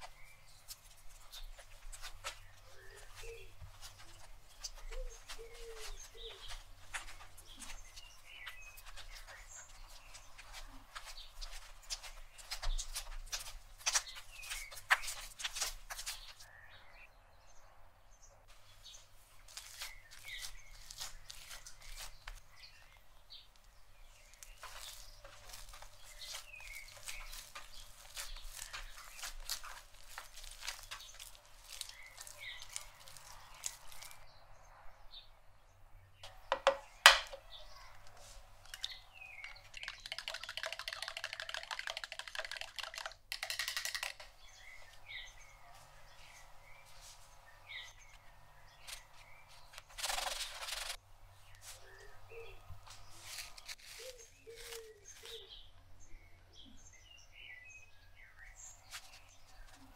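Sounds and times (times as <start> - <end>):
hands kneading dough: 24.3 - 34.2
sharp knock: 36.3 - 37.4
spoon whisking eggs in plastic jug: 38.7 - 44.3.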